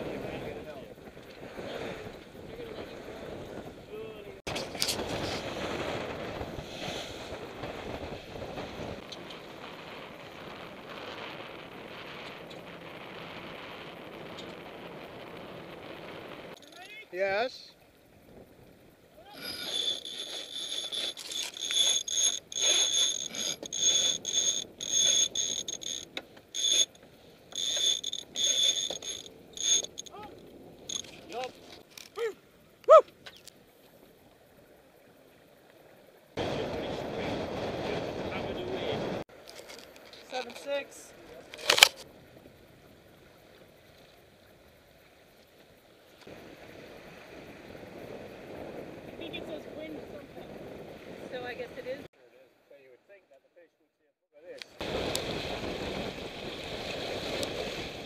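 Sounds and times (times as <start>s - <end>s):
wind: 0.0s - 58.0s
water rushing along boat hull: 19.1s - 32.1s, 54.8s - 58.0s
winch ratchet buzzing: 19.4s - 30.2s, 30.9s - 31.1s.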